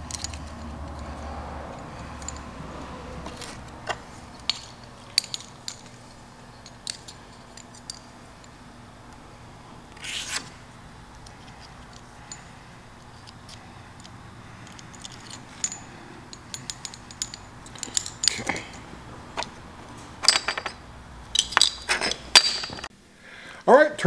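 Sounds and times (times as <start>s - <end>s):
metallic rattle: 0.0s - 8.6s, 14.0s - 22.9s.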